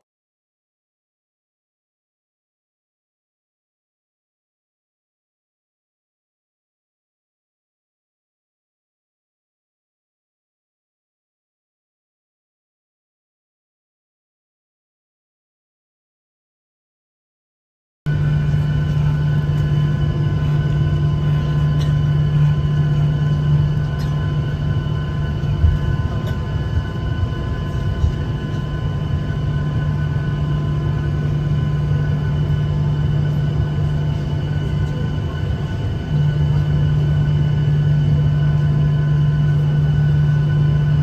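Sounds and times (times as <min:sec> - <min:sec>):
jet engines humming: 0:18.1 - 0:41.0.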